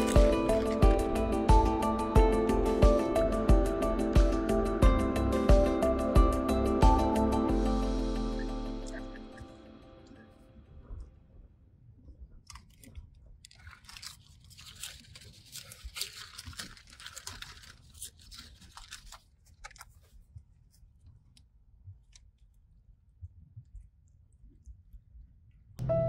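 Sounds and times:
paper bag crinkling: 0:00.0 - 0:01.7, 0:12.5 - 0:20.3.

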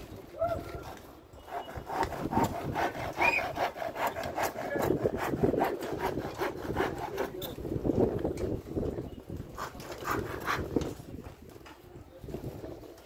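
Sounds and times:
hand saw sawing: 0:00.8 - 0:07.6, 0:09.5 - 0:11.0.

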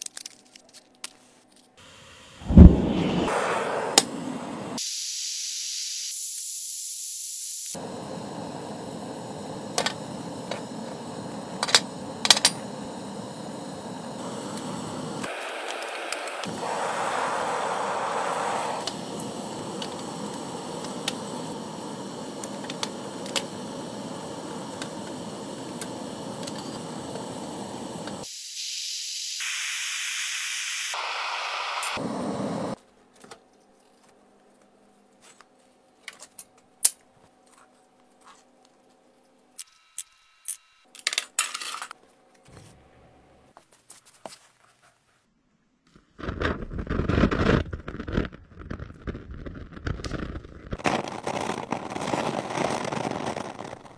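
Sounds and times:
furnace rushing hiss: 0:07.4 - 0:32.8
loud crackling: 0:46.2 - 0:53.9.

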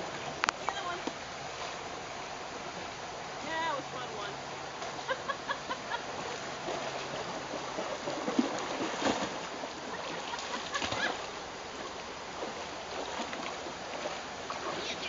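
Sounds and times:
creek water running: 0:00.0 - 0:15.0
puppy splashing in water: 0:06.2 - 0:14.8.

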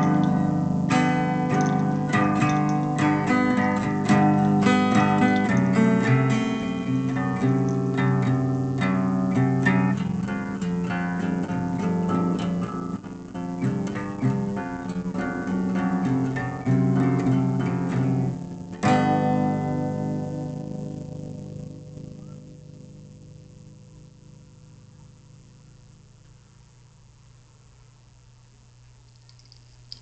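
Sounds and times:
guitar picking notes: 0:00.0 - 0:23.8
guitar chord ringing: 0:00.0 - 0:23.9.

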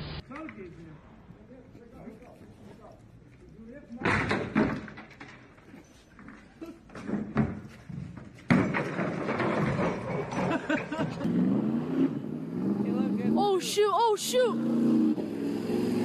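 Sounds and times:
wardrobe crashing to pavement: 0:06.9 - 0:10.7.

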